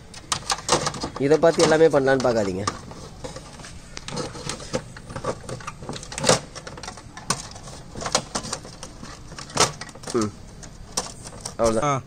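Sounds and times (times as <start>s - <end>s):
hands handling plastic parts: 0.0s - 11.8s.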